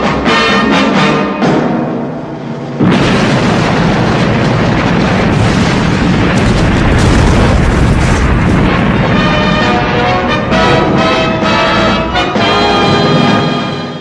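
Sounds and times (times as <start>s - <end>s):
soundtrack music: 9.1s - 14.0s.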